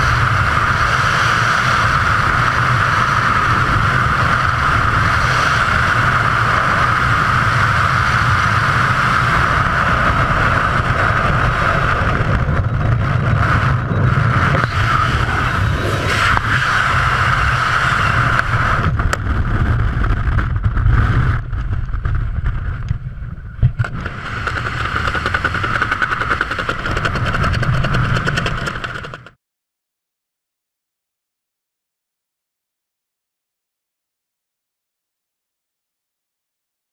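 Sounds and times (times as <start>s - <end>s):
wind buffeting microphone: 0.0s - 29.3s.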